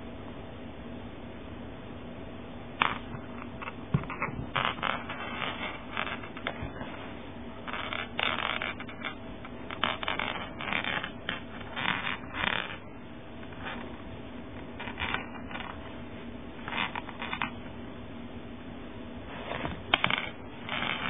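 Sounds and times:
cloth rustling and rubbing: 3.0s - 14.0s, 19.2s - 21.0s.

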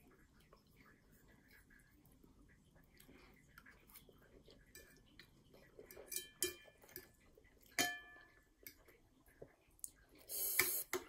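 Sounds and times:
fork clinking on ceramic plate: 6.0s - 7.0s, 7.8s - 8.3s.

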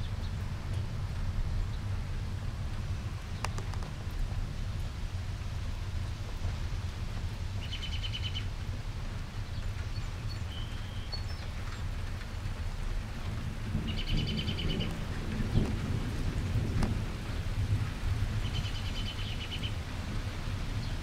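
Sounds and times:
wind and storm rumble: 0.0s - 21.0s
thunder rumbling: 11.5s - 21.0s.

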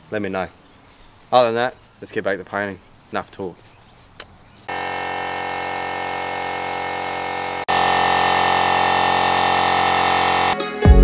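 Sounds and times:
air compressor motor hum: 4.7s - 10.6s.

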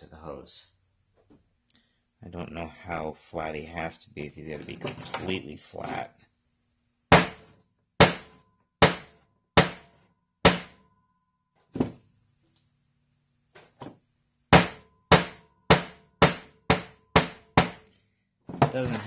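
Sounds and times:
hammer striking metal eyelet: 8.0s - 9.9s, 10.5s - 10.8s, 14.6s - 17.8s.

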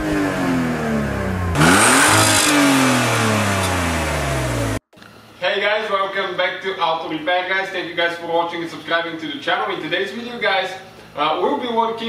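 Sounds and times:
car engine revving: 0.0s - 4.8s.

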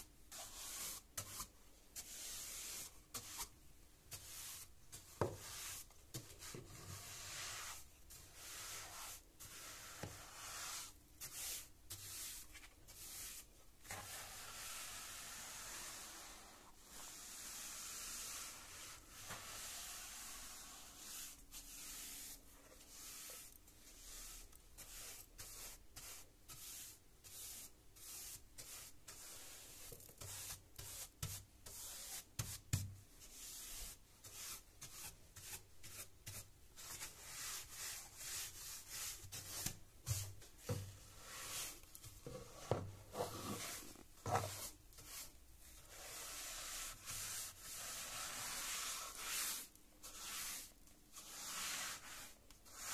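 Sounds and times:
brush sweeping wooden stair: 37.3s - 45.2s.

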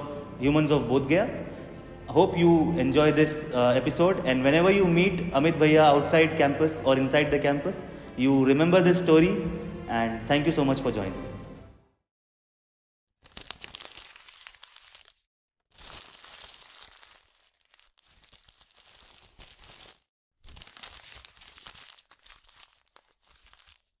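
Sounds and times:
paper crumpling and tearing: 13.2s - 24.0s.

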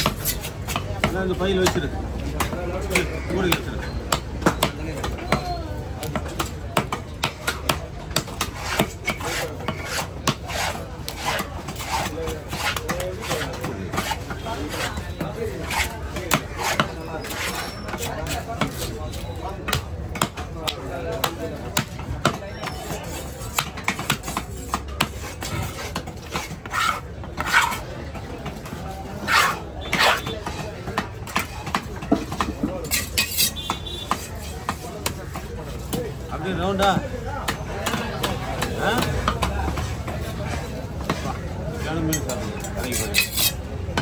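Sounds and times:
knife scraping fish scales: 0.0s - 0.6s, 8.6s - 15.0s, 15.6s - 18.9s, 25.1s - 27.8s, 29.2s - 30.3s, 32.8s - 34.8s, 42.9s - 43.6s.

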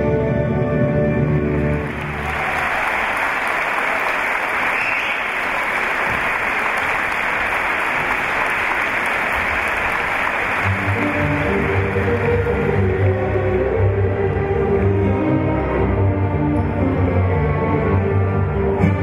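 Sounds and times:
audience applauding: 1.5s - 14.3s.

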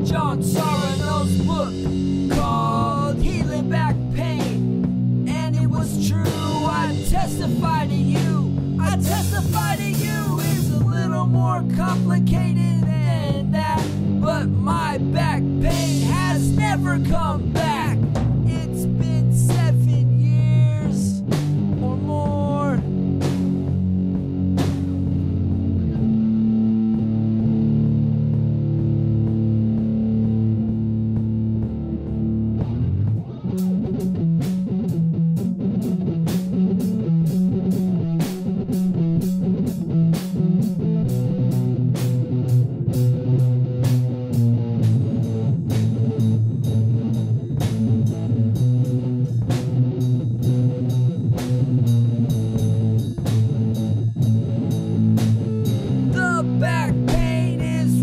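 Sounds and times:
bass guitar: 0.0s - 58.0s
electric guitar chords: 0.0s - 58.0s
drum beat of sharp hits: 55.1s - 58.0s.

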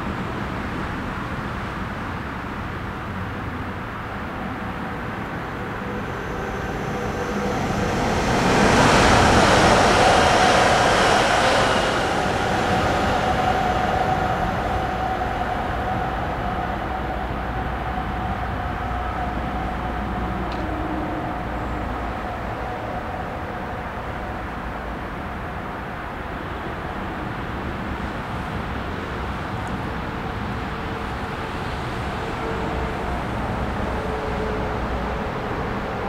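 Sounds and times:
train rushing and rumbling: 0.0s - 36.0s.

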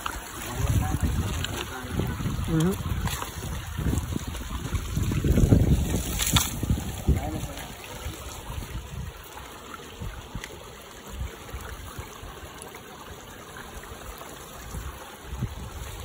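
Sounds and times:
river water running over stones: 0.0s - 16.0s
wind buffeting microphone: 0.4s - 9.3s, 14.6s - 16.0s.

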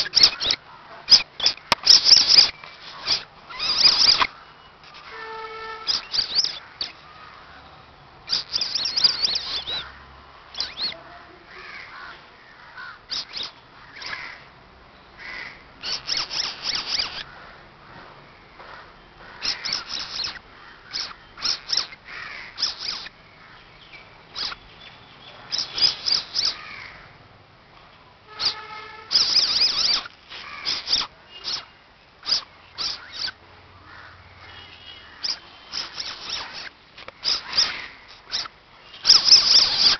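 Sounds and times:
baby civet squeaking: 0.0s - 7.0s, 8.3s - 9.9s, 10.5s - 11.0s, 13.0s - 14.3s, 15.8s - 17.3s, 19.4s - 23.2s, 24.3s - 24.7s, 25.4s - 26.8s, 28.3s - 33.4s, 35.1s - 39.9s.

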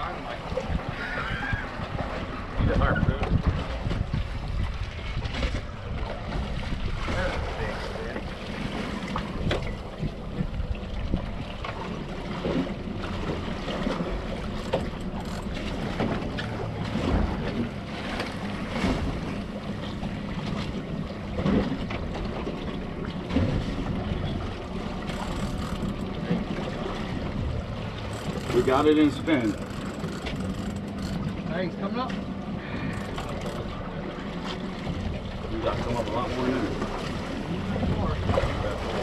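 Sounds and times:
outboard motor idling hum: 0.0s - 39.0s
water slapping against hull: 0.0s - 39.0s
wind on microphone: 0.5s - 8.0s.

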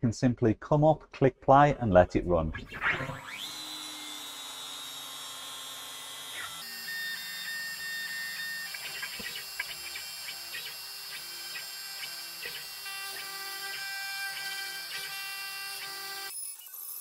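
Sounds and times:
bit cutting wood whirring: 2.6s - 17.0s
router spindle whining: 2.6s - 17.0s.

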